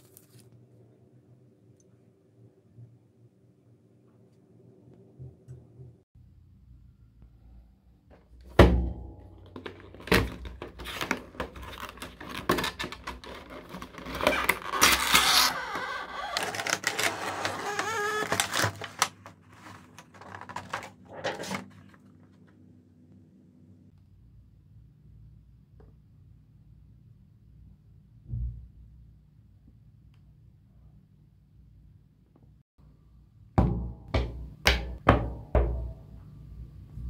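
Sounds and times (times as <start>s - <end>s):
stiff plastic crackling: 9.6s - 22.0s.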